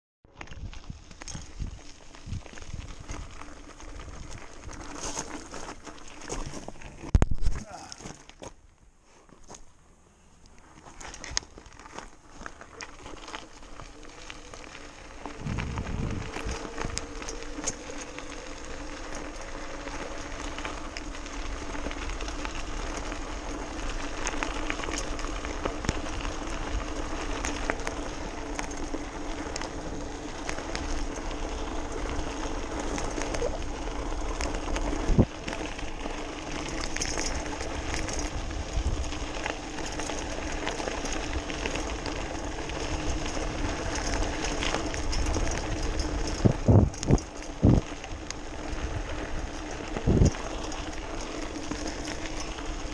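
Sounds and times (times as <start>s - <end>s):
tyres rushing over gravel: 0.3s - 8.6s, 10.5s - 52.9s
bike rattles and clicks: 0.3s - 9.8s, 10.4s - 52.9s
electric motor humming: 13.6s - 36.7s.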